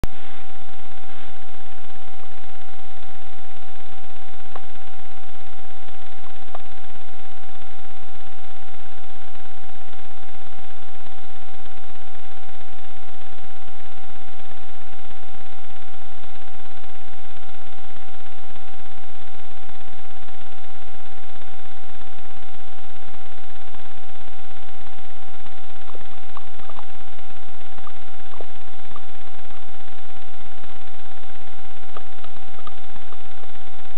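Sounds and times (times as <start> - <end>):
electronic hum and hiss: 0.0 - 33.9
faint clicks: 9.2 - 33.9.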